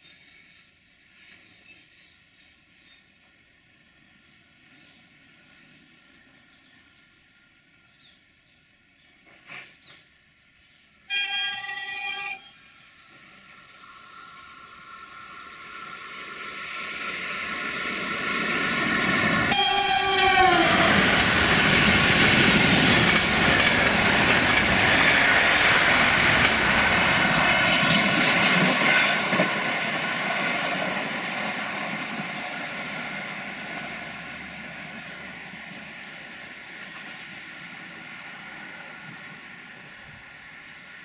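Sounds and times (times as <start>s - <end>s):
train horn: 11.1s - 12.6s, 19.5s - 21.1s
train coaches rushing past: 11.2s - 41.0s.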